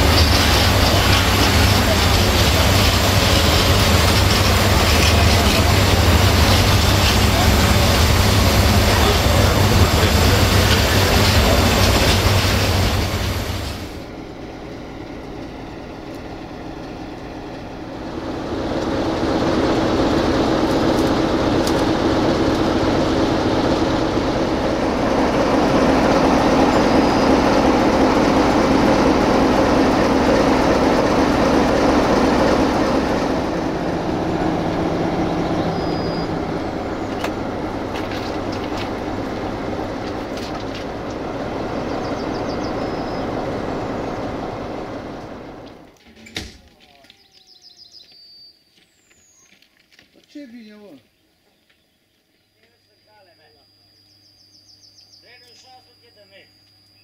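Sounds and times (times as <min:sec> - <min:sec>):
train wheel squeaks: 0:00.0 - 0:13.3
freight train rumbling past: 0:00.0 - 0:46.0.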